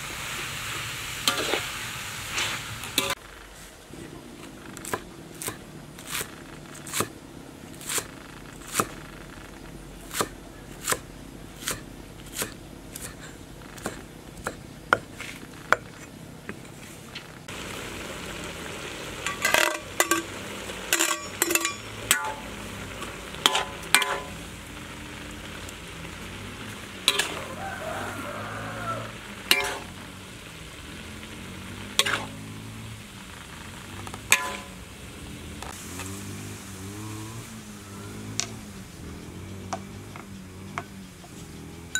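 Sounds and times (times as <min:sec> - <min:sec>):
food sizzling in a wok: 0:00.0 - 0:03.7, 0:17.4 - 0:41.9
spatula scraping a wok: 0:01.2 - 0:04.2, 0:19.2 - 0:32.7, 0:34.0 - 0:34.8
cleaver chopping on wooden board: 0:10.1 - 0:11.0.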